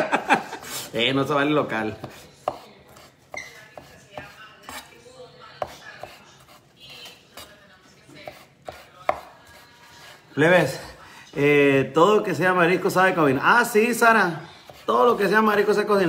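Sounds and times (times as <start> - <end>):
knife chopping on wooden board: 1.9 - 4.9, 5.6 - 6.6, 8.2 - 10.0.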